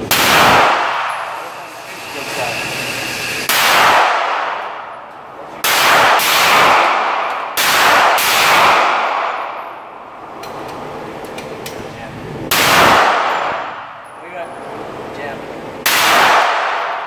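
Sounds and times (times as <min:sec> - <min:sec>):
pistol shots with ringing echo: 0:00.0 - 0:01.4, 0:03.5 - 0:05.0, 0:05.6 - 0:10.0, 0:12.5 - 0:14.1, 0:15.8 - 0:17.0.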